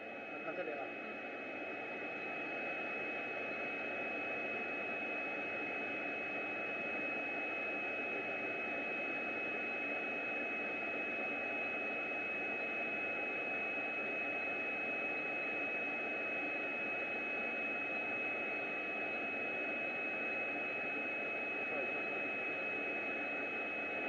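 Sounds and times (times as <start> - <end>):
high-pitched whine: 0.0 - 10.4, 12.5 - 24.0.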